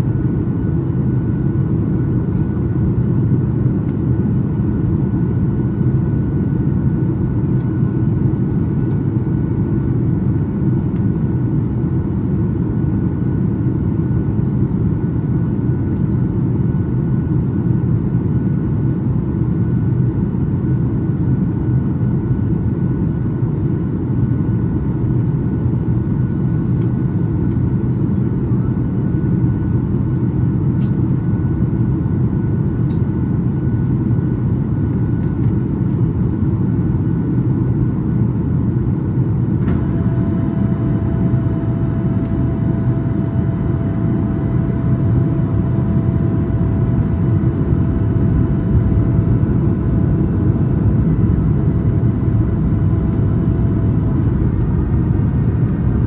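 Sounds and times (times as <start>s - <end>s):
airplane engines rumbling: 0.0s - 56.0s
airflow over fuselage: 24.9s - 56.0s.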